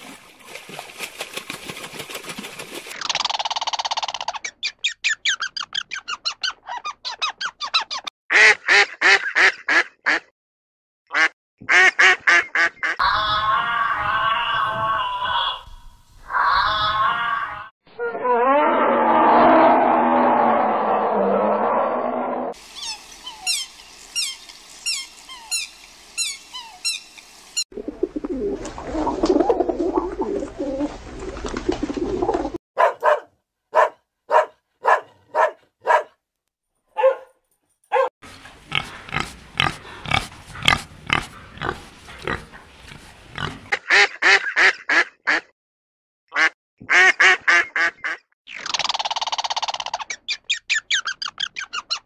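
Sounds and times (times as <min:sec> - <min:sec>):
loud noisy mass of animal calls: 0:13.0 - 0:21.8.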